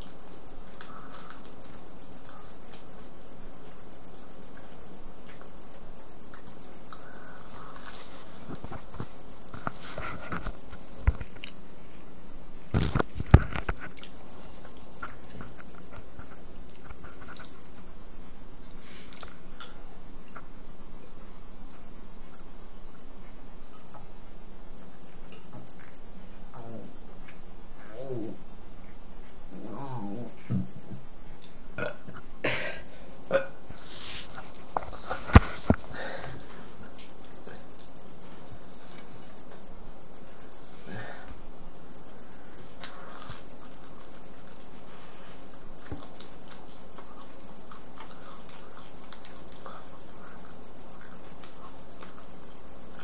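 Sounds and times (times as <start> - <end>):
rustling: 0.0 - 12.1, 33.7 - 41.4
breathing close to microphone: 35.0 - 36.8.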